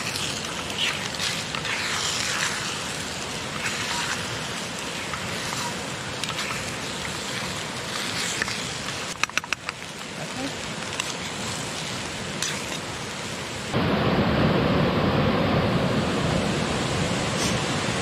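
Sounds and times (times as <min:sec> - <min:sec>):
rushing pattering water: 0:00.0 - 0:14.2.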